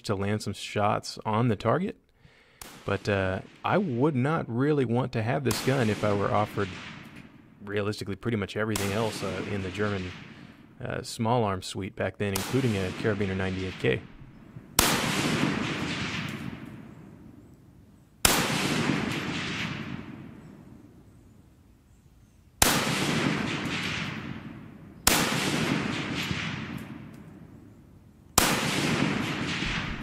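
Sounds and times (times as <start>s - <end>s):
rifle shots with echo: 2.5s - 7.9s, 8.6s - 11.0s, 12.3s - 21.3s, 22.6s - 30.0s.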